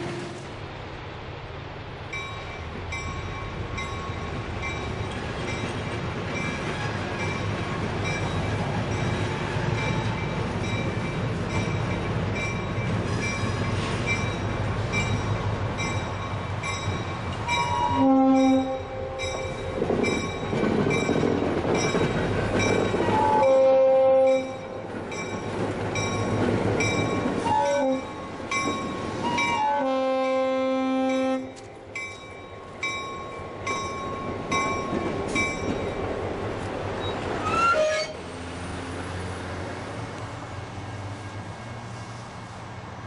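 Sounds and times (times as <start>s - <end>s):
diesel locomotive rumbling: 0.0s - 43.0s
locomotive bell ringing: 2.2s - 36.1s
locomotive horn blast: 17.7s - 19.4s, 23.1s - 24.6s, 27.4s - 28.2s, 29.2s - 31.6s.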